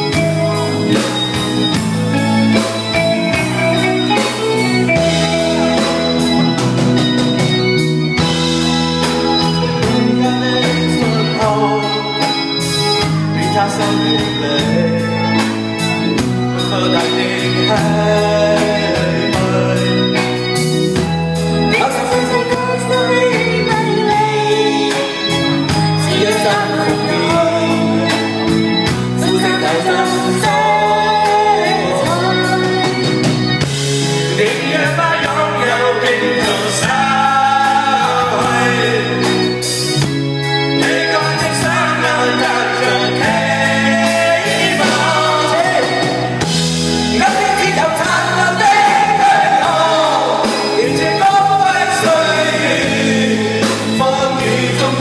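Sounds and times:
steady drum beat: 0.0s - 11.7s, 25.6s - 55.0s
group singing into microphones: 0.0s - 55.0s
live pop rock band: 0.0s - 55.0s.

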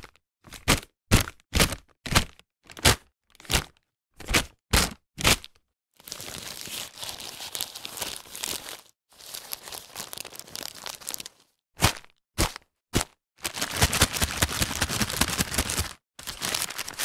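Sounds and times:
paper bag rustling and crinkling: 6.0s - 11.6s, 13.4s - 17.0s.

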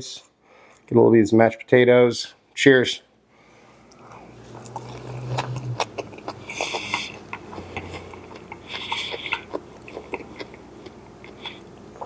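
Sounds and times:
low steady hum: 0.0s - 12.0s
person chewing food: 3.8s - 12.0s.

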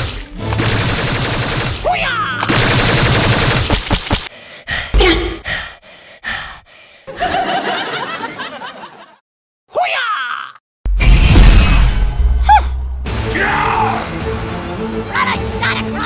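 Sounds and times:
automatic rifle fire: 0.6s - 1.8s, 2.4s - 4.2s.

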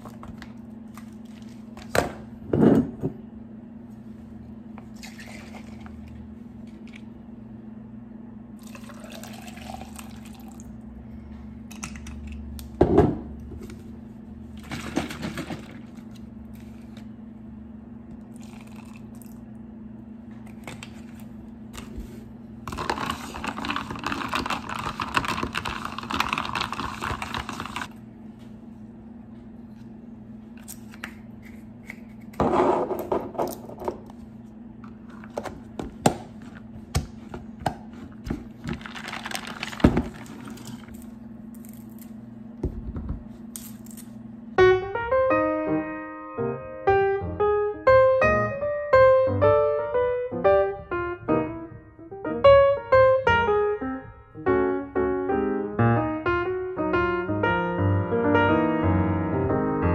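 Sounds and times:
steady low hum: 0.0s - 24.0s
coffee pouring into cup: 8.6s - 10.8s, 18.3s - 19.4s
stirring with plastic straw: 22.7s - 27.9s.

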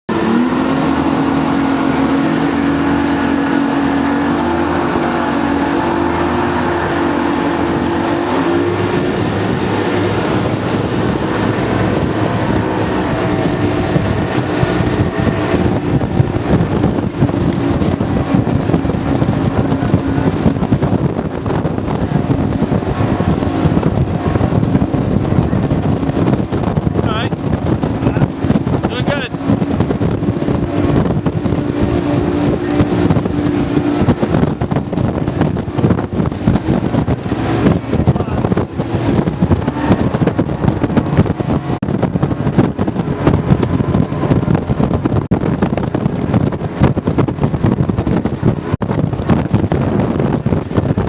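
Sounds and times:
hull slapping choppy water: 0.1s - 51.0s
outboard engines droning: 0.1s - 51.0s
wind rushing on microphone: 0.1s - 51.0s.

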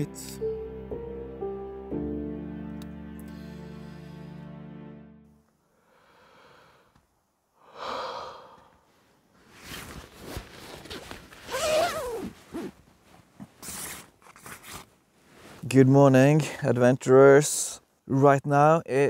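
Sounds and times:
man sighing and breathing: 5.7s - 7.0s, 7.6s - 8.9s
rustling rubbing noise: 9.3s - 15.9s.

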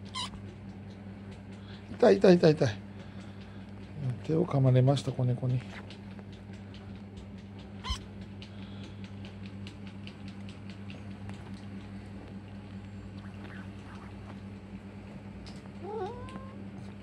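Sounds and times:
high kitten squeak: 0.0s - 0.4s, 7.8s - 8.1s
steady low hum: 0.0s - 17.0s.

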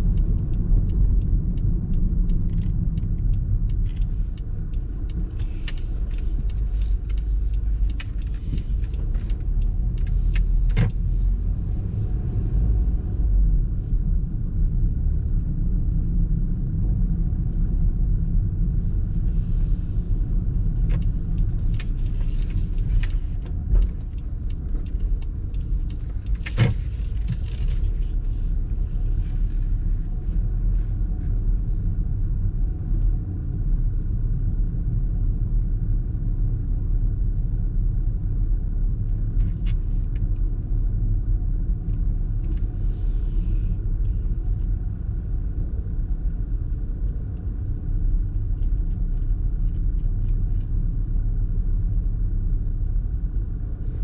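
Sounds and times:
light ticks: 0.0s - 11.1s, 20.4s - 31.4s
car road and engine rumble: 0.0s - 54.0s.

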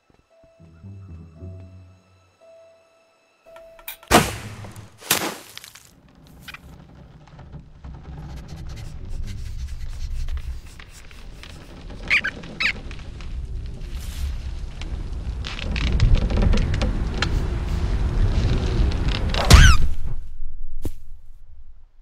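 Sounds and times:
sharp crack: 3.9s - 5.9s, 19.0s - 20.2s
cartoon squeaks: 11.6s - 12.8s, 19.5s - 19.9s
low rumble: 12.8s - 22.0s.

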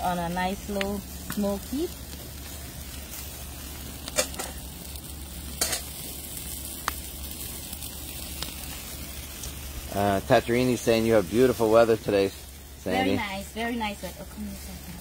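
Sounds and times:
food sizzling over wood fire: 0.0s - 15.0s.

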